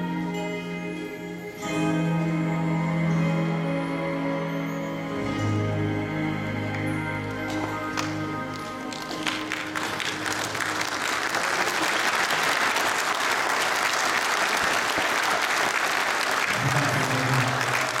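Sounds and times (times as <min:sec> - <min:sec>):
audience applauding: 0:07.4 - 0:18.0.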